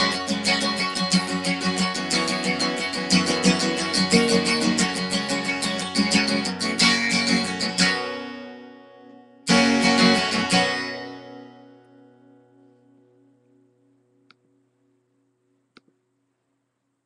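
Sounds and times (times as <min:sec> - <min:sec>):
acoustic guitar strumming: 0:00.0 - 0:13.4.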